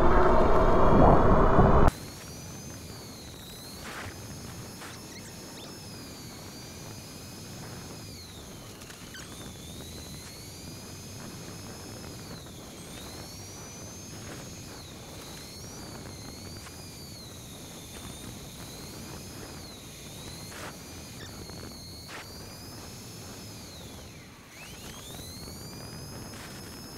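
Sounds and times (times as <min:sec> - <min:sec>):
wind rushing: 0:00.0 - 0:01.9
electric bike motor whine: 0:00.0 - 0:26.9.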